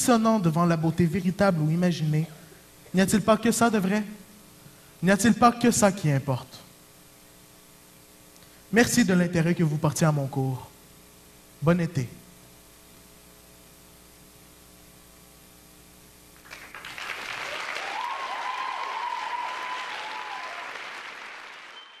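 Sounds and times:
low steady hum: 0.0 - 20.7
audience applause: 16.4 - 22.0
drawn-out cheer: 17.4 - 21.9.

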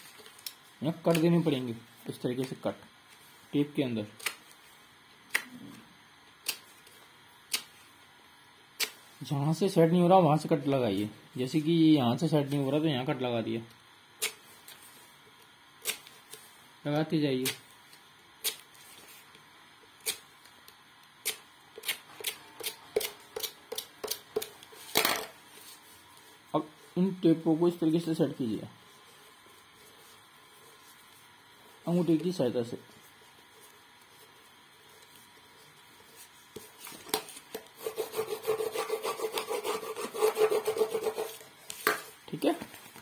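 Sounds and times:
knife cutting tape: 15.8 - 16.1, 36.8 - 42.0.

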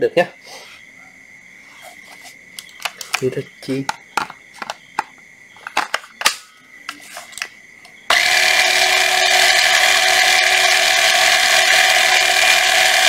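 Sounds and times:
cordless rod cutter whining: 8.1 - 13.0.

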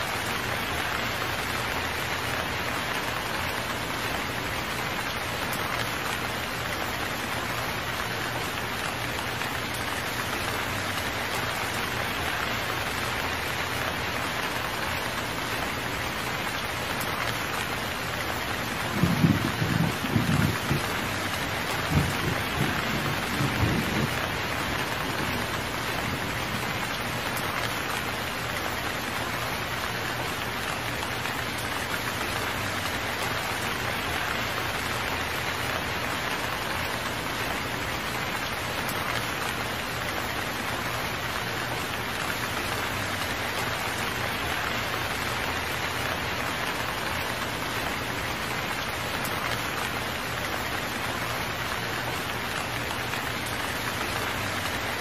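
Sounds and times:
steady rain: 0.0 - 55.0
low rumble of thunder: 18.9 - 21.1, 21.7 - 26.6.

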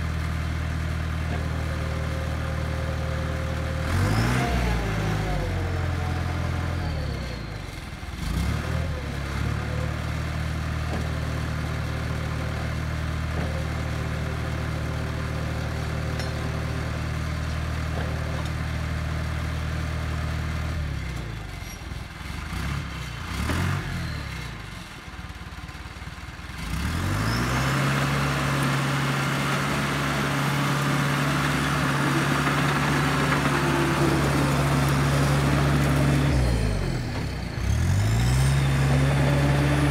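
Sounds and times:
diesel engine running: 0.0 - 39.9
engine revving: 3.7 - 10.0, 22.3 - 24.7, 26.6 - 39.9.

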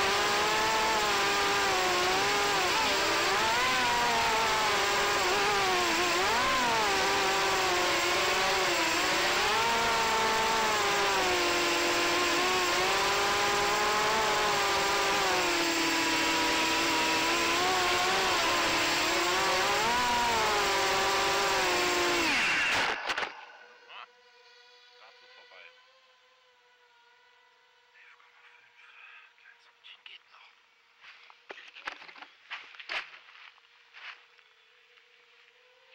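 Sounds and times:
quadcopter motors whining: 0.0 - 29.7, 34.3 - 35.9.

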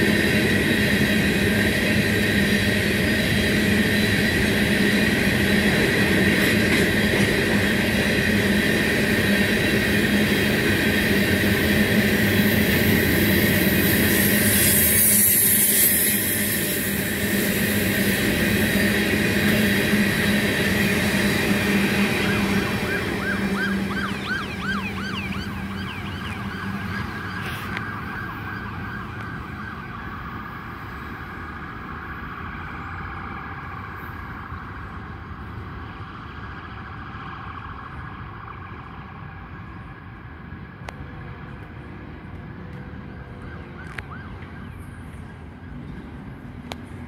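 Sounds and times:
train wheels squealing: 0.0 - 27.8
wheels rumbling on rail: 0.0 - 47.0.

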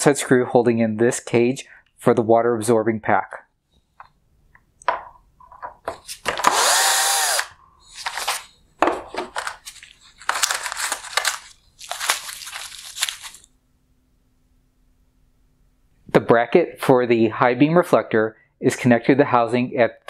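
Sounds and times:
cordless drill spinning: 6.2 - 8.4.

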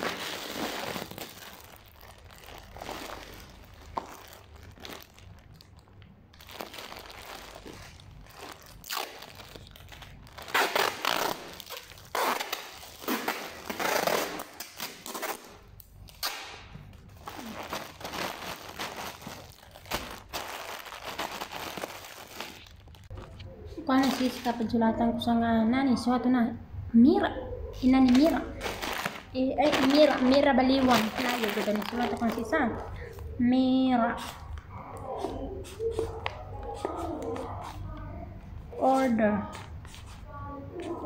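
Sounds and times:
plastic bag crinkling: 0.0 - 16.2, 16.8 - 24.7, 28.0 - 33.3
packing tape pulled off roll: 0.0 - 23.3.

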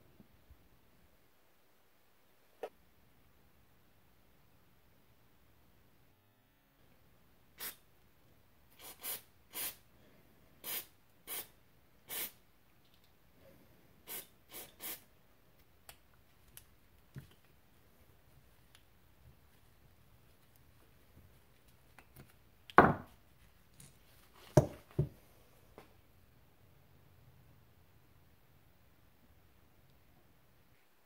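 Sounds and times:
aerosol spray hissing: 7.6 - 7.8, 8.7 - 9.8, 10.6 - 11.5, 12.1 - 12.4, 14.0 - 15.0.

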